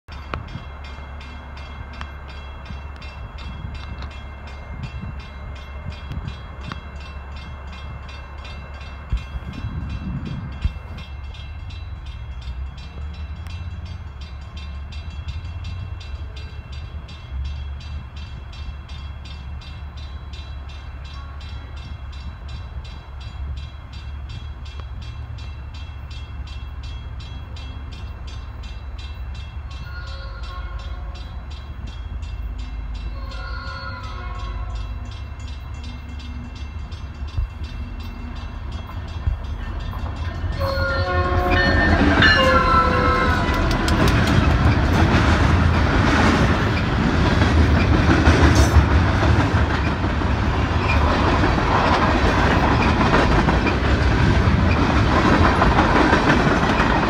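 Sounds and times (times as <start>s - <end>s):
crossing bell ringing: 0.1s - 57.0s
train rumble: 0.1s - 57.0s.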